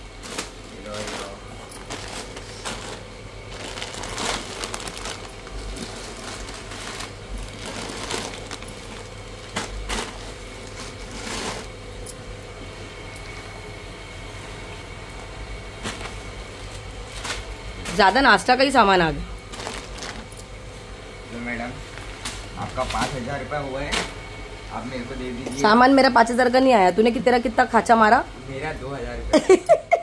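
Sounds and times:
plastic packets rustling and crinkling: 0.1s - 11.8s, 15.8s - 18.5s, 19.4s - 20.6s, 21.9s - 24.1s.

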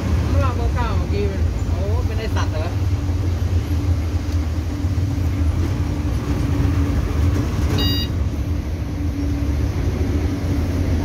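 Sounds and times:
bus engine rumble: 0.0s - 11.0s
short electronic beep: 7.8s - 8.2s.

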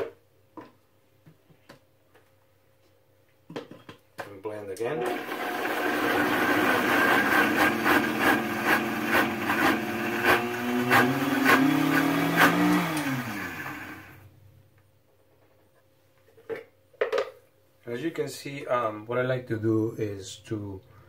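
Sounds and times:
blender running: 4.9s - 14.2s.

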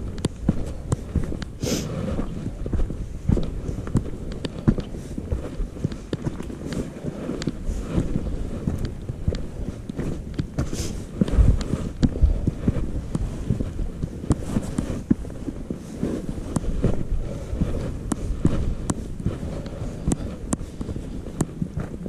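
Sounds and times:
boots scraping on rock: 0.0s - 22.0s
footsteps on rocky trail: 0.0s - 22.0s.

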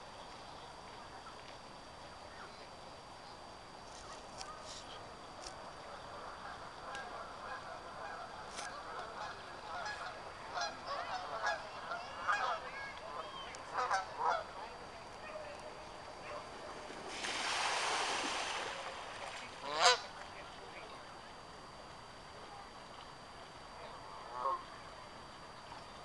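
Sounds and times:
broad rush of noise: 0.0s - 21.6s
geese honking: 6.2s - 14.7s, 19.6s - 20.1s, 23.8s - 24.8s.

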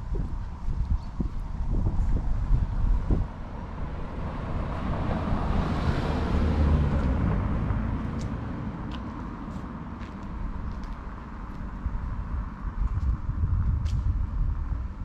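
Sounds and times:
car passing by: 3.0s - 9.9s.

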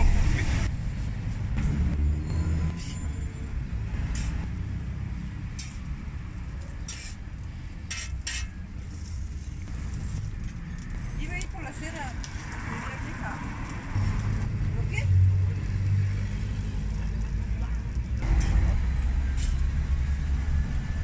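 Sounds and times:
street traffic rumble: 0.0s - 21.0s
metal spatula scraping a griddle: 2.7s - 3.2s, 4.0s - 4.5s, 5.5s - 6.0s, 6.6s - 10.3s, 19.3s - 19.7s.

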